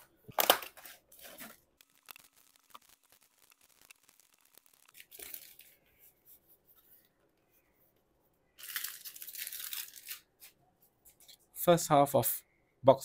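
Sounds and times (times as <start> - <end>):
foil wrappers crinkling: 0.4 - 5.9, 8.6 - 10.6.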